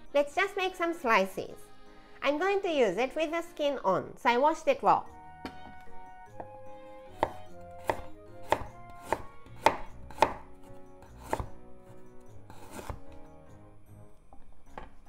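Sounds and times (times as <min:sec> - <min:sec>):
knife chopping ginger on board: 0:06.4 - 0:13.2.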